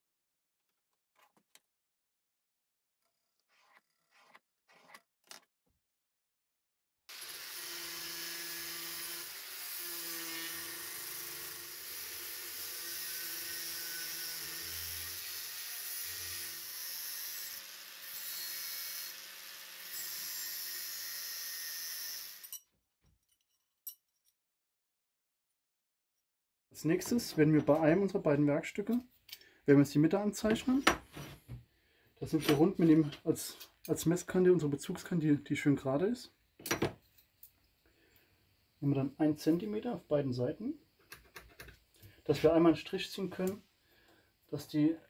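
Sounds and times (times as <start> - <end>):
angle grinder cutting steel: 7.1 - 22.6.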